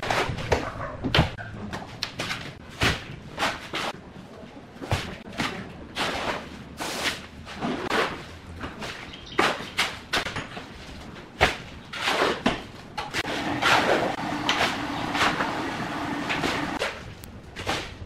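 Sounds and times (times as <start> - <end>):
shovel scraping wet concrete: 5.3 - 10.3, 11.5 - 17.0.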